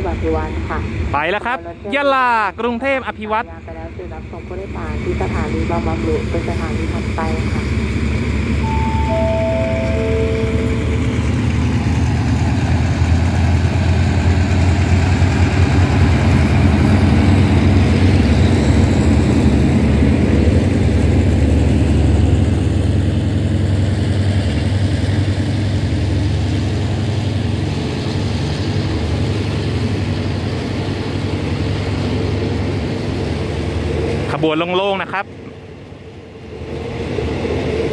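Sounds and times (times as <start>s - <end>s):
locomotive engine running: 3.6s - 34.4s
train coaches rolling on rails: 3.8s - 37.9s
falling chime tones: 8.6s - 11.4s.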